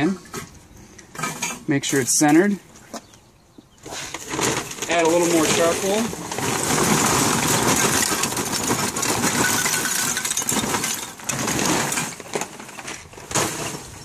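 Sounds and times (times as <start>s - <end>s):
charcoal chunks rattling into basket: 4.1s - 14.0s.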